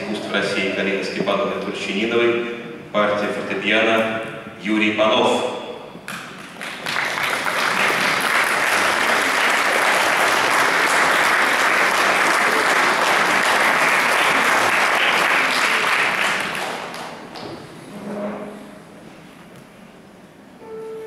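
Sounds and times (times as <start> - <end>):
audience applauding: 6.1 - 17.4.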